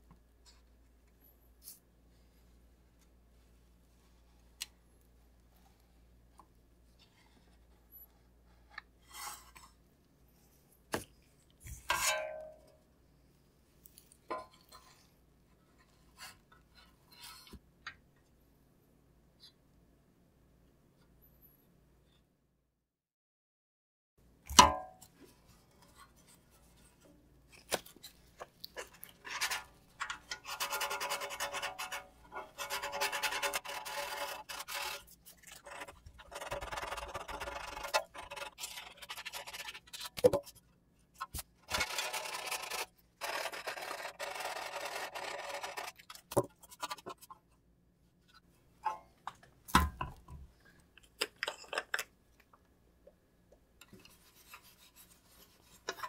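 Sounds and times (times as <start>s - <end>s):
sandpaper scratching on metal: 30.3s - 39.9s.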